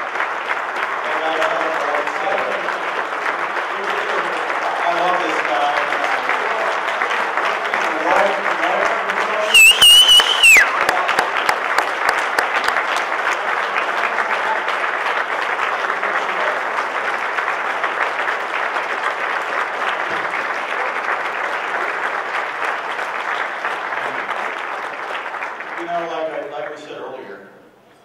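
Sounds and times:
large audience applauding: 0:00.0 - 0:27.1.

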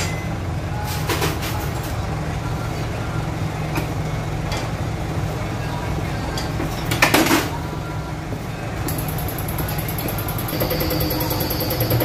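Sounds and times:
machine humming: 0:08.9 - 0:12.0.

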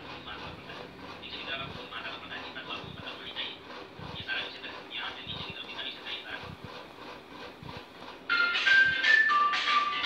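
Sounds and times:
music with held high notes: 0:08.3 - 0:10.0.

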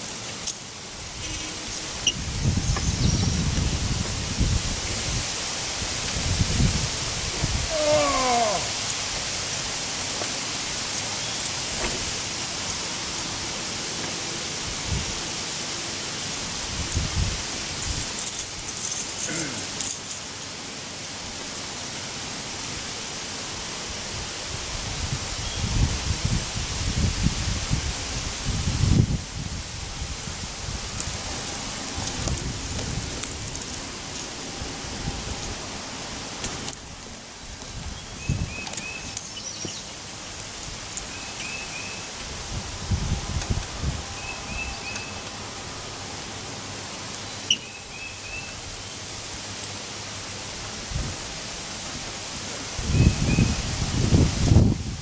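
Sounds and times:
light clinks: 0:00.0 - 0:03.0, 0:17.8 - 0:22.9
parachute canopy rustling: 0:00.0 - 0:23.6
wind hiss: 0:00.0 - 0:55.0
wind buffeting microphone: 0:00.8 - 0:08.4, 0:16.4 - 0:18.6, 0:23.9 - 0:39.1, 0:42.2 - 0:44.9, 0:50.6 - 0:51.6, 0:52.7 - 0:55.0
bird chirping: 0:01.2 - 0:03.6, 0:37.9 - 0:40.0, 0:41.1 - 0:42.1, 0:44.2 - 0:45.3, 0:47.2 - 0:48.6.

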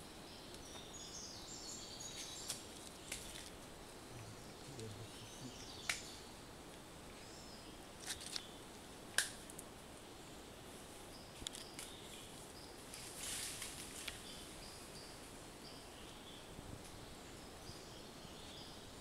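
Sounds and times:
insect calls: 0:00.0 - 0:19.0
bird calls: 0:04.1 - 0:06.3
short dry rustle: 0:11.4 - 0:14.3.

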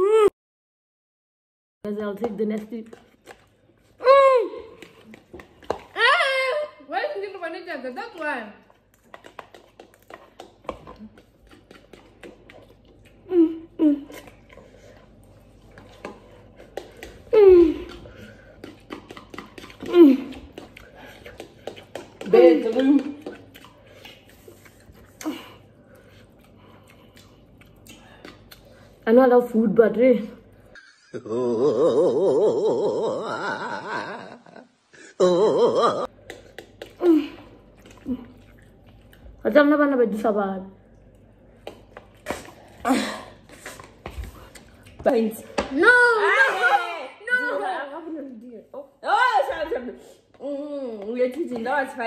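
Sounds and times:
woman moaning: 0:00.0 - 0:00.4, 0:04.0 - 0:04.8, 0:17.3 - 0:18.0, 0:31.1 - 0:36.1
noodles slurped and chewed: 0:02.6 - 0:06.3, 0:07.1 - 0:29.0, 0:36.1 - 0:39.4
man laughing in high wavering voice: 0:30.8 - 0:36.1.

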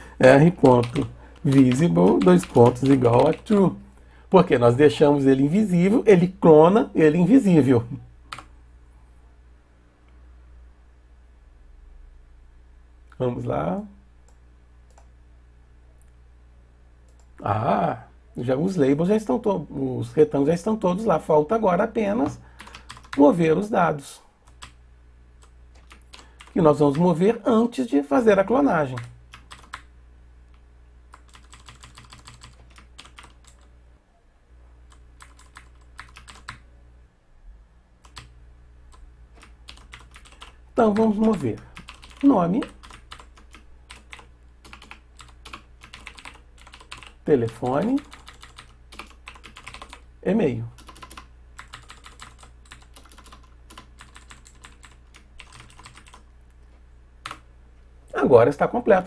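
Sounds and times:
steady low hum: 0:00.0 - 0:59.0
computer keyboard clicking: 0:00.6 - 0:03.6, 0:22.6 - 0:23.2, 0:25.7 - 0:27.0, 0:29.0 - 0:29.9, 0:31.1 - 0:33.7, 0:34.9 - 0:36.6, 0:38.0 - 0:38.3, 0:39.4 - 0:50.0, 0:50.8 - 0:56.3.

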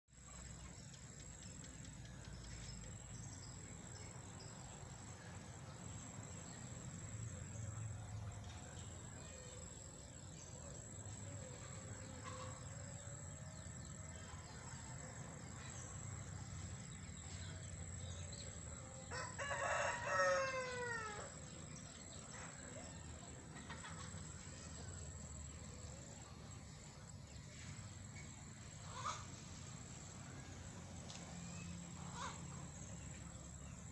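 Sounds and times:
low background noise: 0:00.1 - 0:33.9
rooster crowing: 0:19.1 - 0:21.4.

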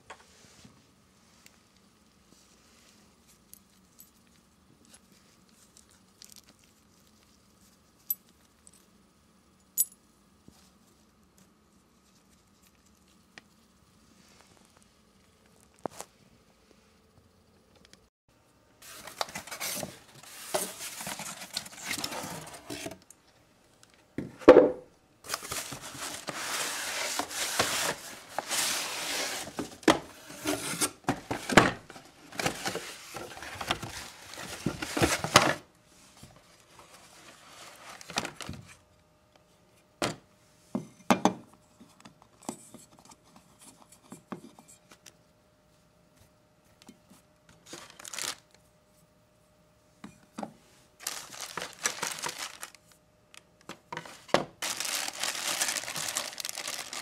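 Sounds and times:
cardboard scraping and rustling: 0:18.8 - 0:23.0, 0:25.3 - 0:35.6, 0:51.0 - 0:52.8.

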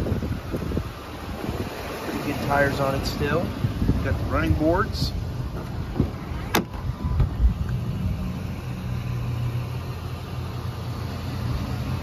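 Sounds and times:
low vehicle rumble: 0:00.0 - 0:12.0
car door thump: 0:05.5 - 0:07.4.

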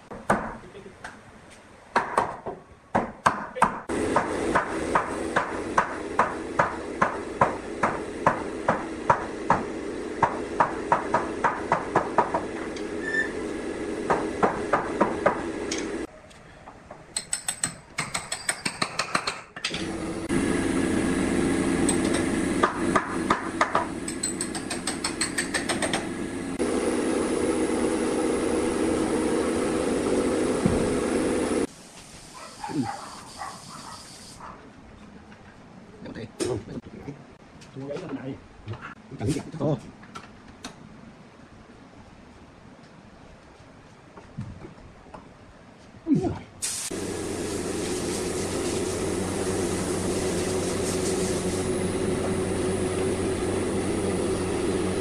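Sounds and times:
steady hum: 0:46.9 - 0:55.0.

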